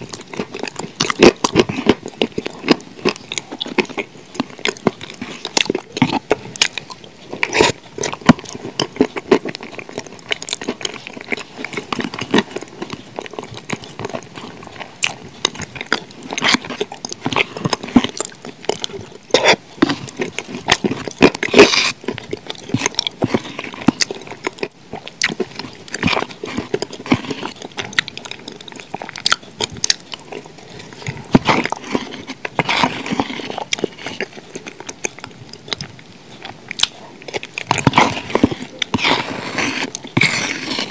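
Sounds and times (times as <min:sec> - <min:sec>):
wet mouth eating sounds: 0:00.0 - 0:40.9
metal spoon scraping plastic tub: 0:37.8 - 0:40.9.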